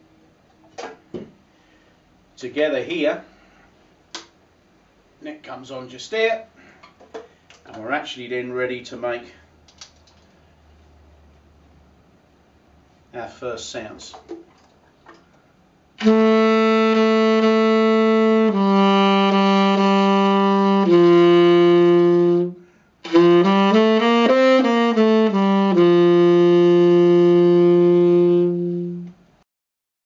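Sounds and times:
tenor saxophone playing: 16.0 - 29.4.

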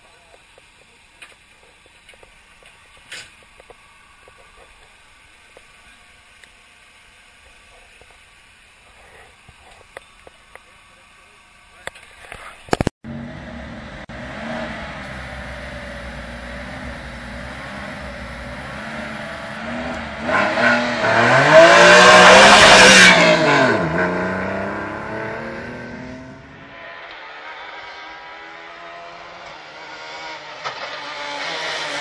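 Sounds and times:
car engine revving: 12.8 - 32.0.

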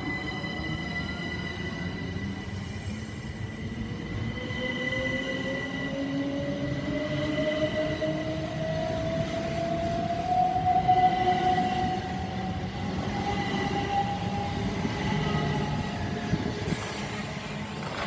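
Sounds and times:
wheels rumbling on rail: 12.5 - 18.0.

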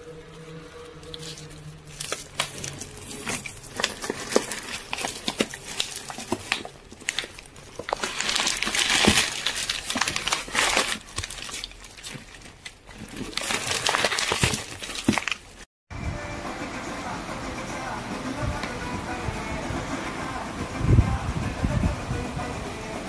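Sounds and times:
plastic wrap crinkling: 0.9 - 15.7.

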